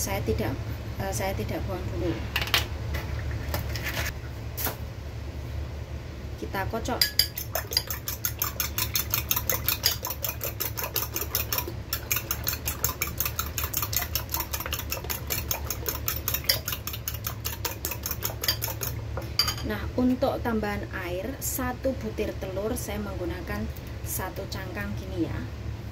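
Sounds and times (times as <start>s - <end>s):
fork whisking eggs in glass bowl: 7.0s - 19.0s.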